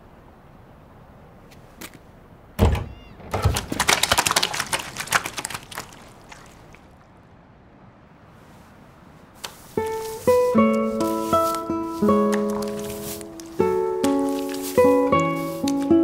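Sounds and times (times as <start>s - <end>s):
door thudding open: 2.6s - 3.8s
fish clattering on stone: 3.2s - 6.8s, 11.5s - 16.0s.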